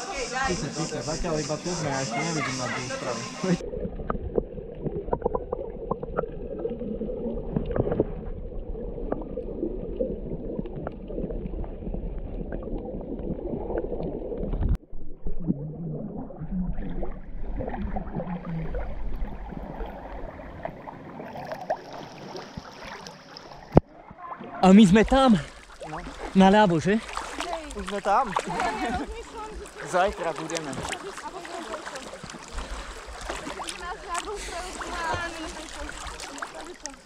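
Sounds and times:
muffled underwater water rumble: 0:00.0 - 0:37.0
water splashing: 0:00.0 - 0:37.0
bubbles gurgling and clicking: 0:03.6 - 0:23.9.

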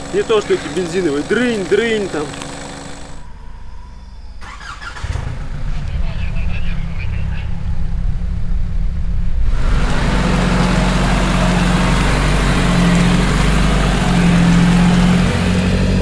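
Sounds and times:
vehicle pushing through branches: 0:00.0 - 0:03.2, 0:04.4 - 0:06.0, 0:09.5 - 0:16.0
vehicle engine droning: 0:00.0 - 0:16.0.

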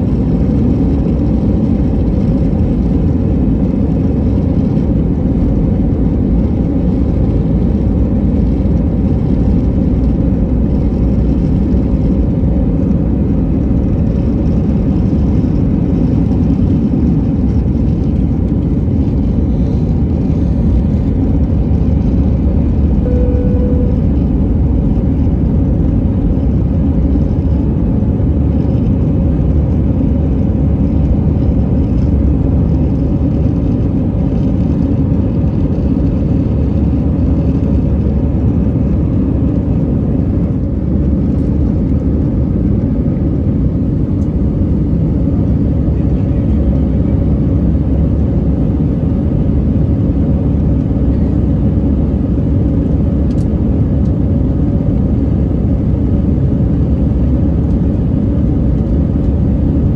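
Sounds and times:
jet engine and rushing air in cabin: 0:00.0 - 0:59.9.

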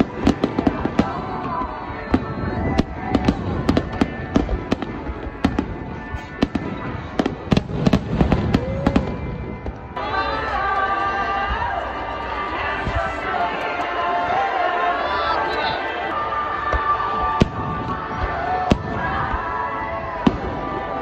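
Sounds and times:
fireworks pops and crackles: 0:00.0 - 0:10.0.

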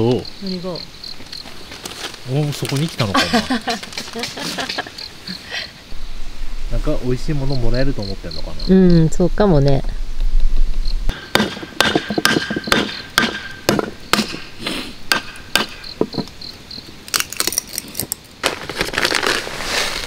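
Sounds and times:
hatchet striking firewood: 0:11.1 - 0:16.3.

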